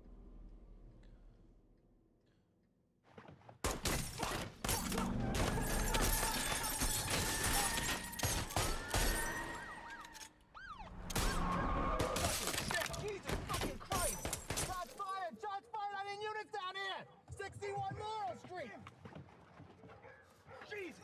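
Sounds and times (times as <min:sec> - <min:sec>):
glass shattering: 0:03.8 - 0:09.7, 0:12.0 - 0:15.0.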